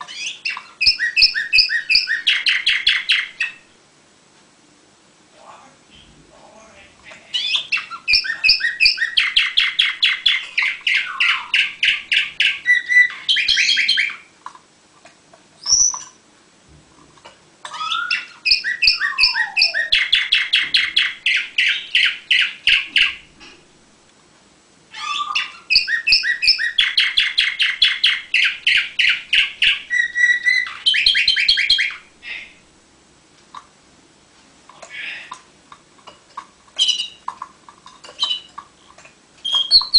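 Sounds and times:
canary singing trills: 0:00.0 - 0:03.7, 0:05.9 - 0:14.3, 0:15.6 - 0:16.2, 0:17.7 - 0:23.6, 0:24.9 - 0:32.5, 0:36.8 - 0:37.3, 0:38.1 - 0:38.6, 0:39.4 - 0:39.9.

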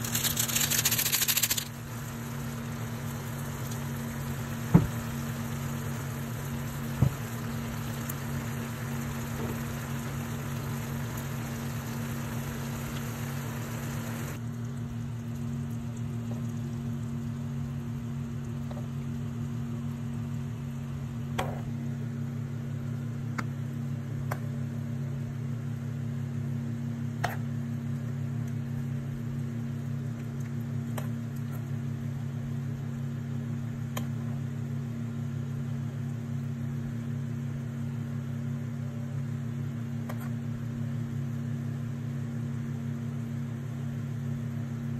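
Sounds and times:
sauce bubbling in a pan: 0:00.0 - 0:21.2
low machine hum: 0:00.0 - 0:44.9.

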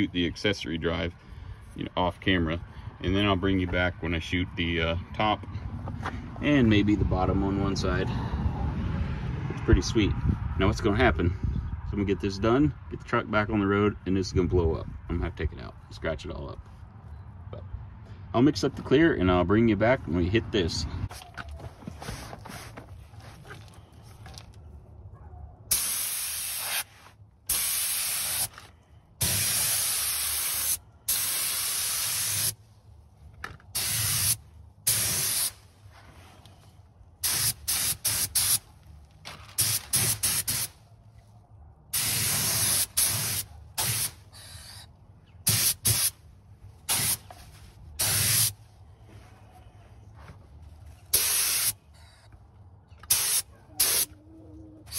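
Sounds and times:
paint spray gun hissing: 0:25.7 - 0:26.9, 0:27.5 - 0:28.5, 0:29.2 - 0:32.5, 0:42.0 - 0:44.8, 0:45.5 - 0:46.1, 0:46.9 - 0:47.2, 0:48.0 - 0:48.5, 0:51.2 - 0:51.8, 0:53.1 - 0:54.1.

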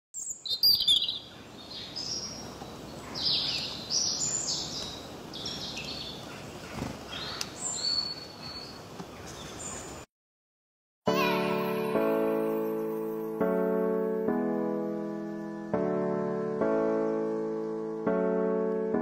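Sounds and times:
birds chirping: 0:00.2 - 0:10.1
outdoor background hiss: 0:00.2 - 0:10.1, 0:11.9 - 0:19.0.

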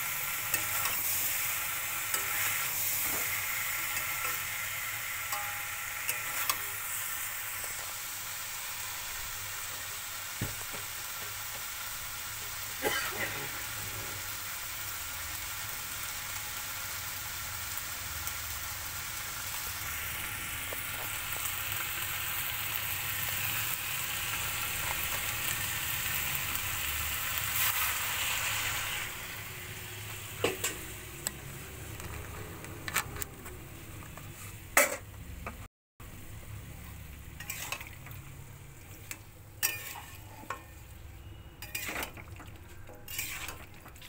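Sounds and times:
vegetables sizzling in oil: 0:00.0 - 0:34.8, 0:36.0 - 0:44.0
spatula scraping a pan: 0:00.4 - 0:06.8, 0:37.4 - 0:38.0, 0:39.6 - 0:44.0.

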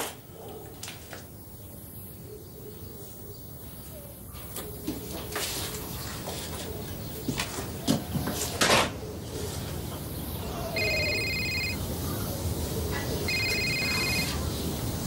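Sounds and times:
telephone ringing: 0:10.8 - 0:11.9, 0:13.3 - 0:14.4.

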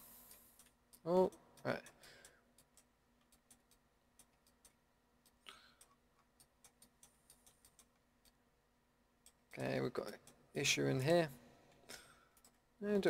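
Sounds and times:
computer mouse clicks: 0:00.2 - 0:08.4.

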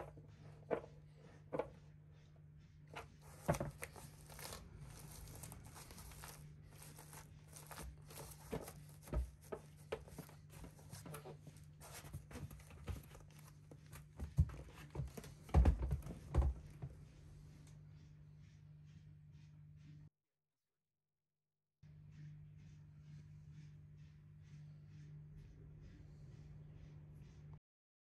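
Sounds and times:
foot strap rustling and scraping: 0:03.0 - 0:15.3.

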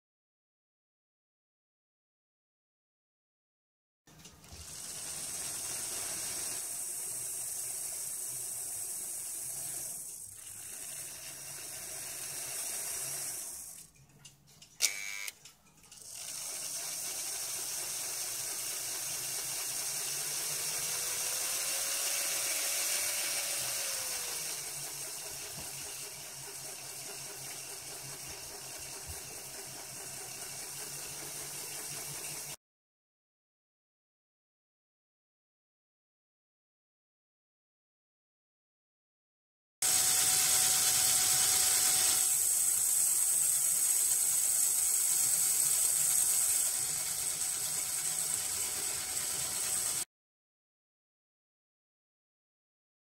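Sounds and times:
model locomotive motor whirring: 0:04.2 - 0:14.0, 0:14.8 - 0:32.6, 0:39.8 - 0:50.1.

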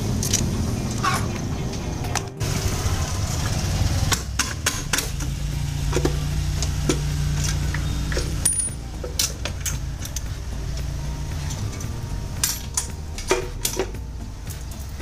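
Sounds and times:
metallic clinks and knocks: 0:04.4 - 0:15.0.

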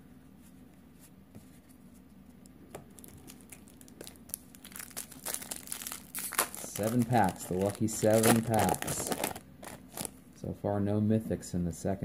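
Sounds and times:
foil wrapper crinkling: 0:02.9 - 0:10.1.

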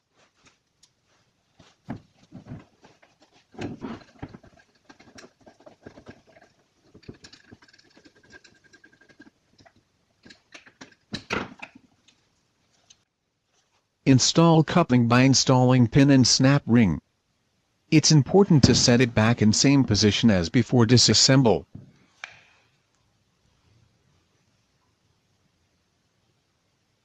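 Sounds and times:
plastic parts clicking and rubbing: 0:01.6 - 0:13.0.

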